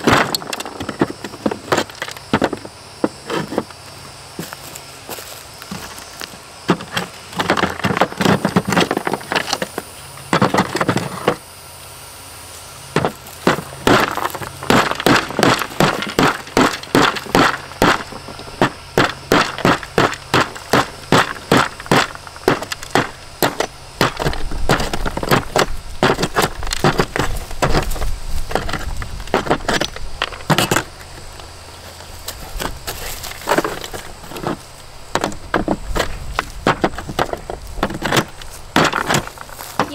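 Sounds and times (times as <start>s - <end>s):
hand tool knocking mortar: 13.0s - 27.9s, 34.4s - 39.9s.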